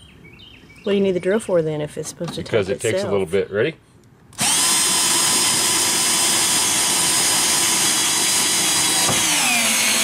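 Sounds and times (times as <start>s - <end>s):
cordless drill high whine: 4.3s - 10.0s.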